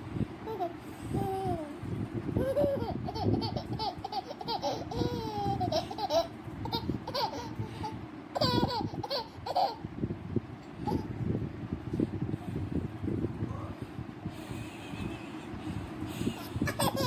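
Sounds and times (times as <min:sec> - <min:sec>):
baby giggling and squealing: 0:02.4 - 0:09.8.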